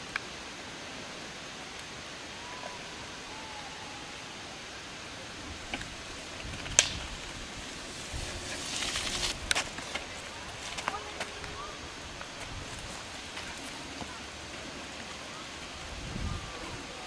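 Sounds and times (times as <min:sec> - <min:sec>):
steady outdoor hiss: 0:00.0 - 0:17.0
bike rolling on gravel: 0:05.3 - 0:17.0.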